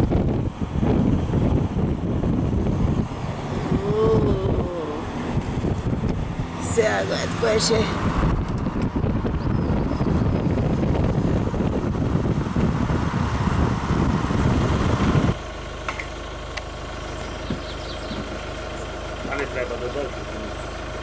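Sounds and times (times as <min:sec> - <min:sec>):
wind buffeting microphone: 0:00.0 - 0:15.4
engine idling hum: 0:00.0 - 0:21.0
moving vehicle noise: 0:00.0 - 0:21.0.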